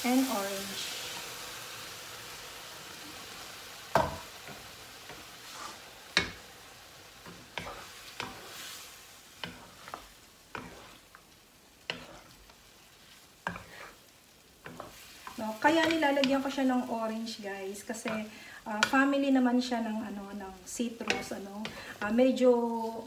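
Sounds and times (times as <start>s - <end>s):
chicken sizzling in a pan: 0.0s - 23.0s
wooden spatula knocking on pan: 3.9s - 4.6s, 6.2s - 6.4s.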